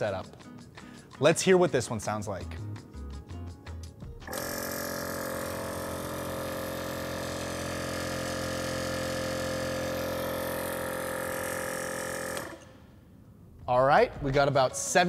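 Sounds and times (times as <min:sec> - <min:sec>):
air compressor motor droning: 0:04.3 - 0:12.7.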